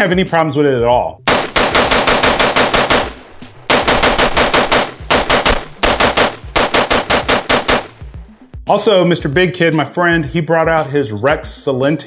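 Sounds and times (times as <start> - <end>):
rifle firing rapid shots: 1.3 - 8.1.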